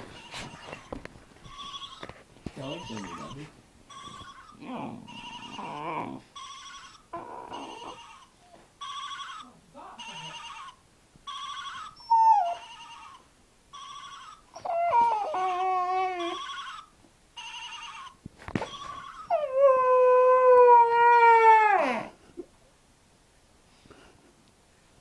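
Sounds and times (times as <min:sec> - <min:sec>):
phone ringtone pulses: 0:03.9 - 0:04.5, 0:05.1 - 0:05.8, 0:06.4 - 0:07.0, 0:08.8 - 0:09.4, 0:11.3 - 0:12.0, 0:12.6 - 0:14.5, 0:16.2 - 0:19.3
dog howling: 0:04.5 - 0:06.2, 0:07.1 - 0:08.1, 0:11.7 - 0:13.2, 0:14.6 - 0:16.5, 0:19.2 - 0:22.1.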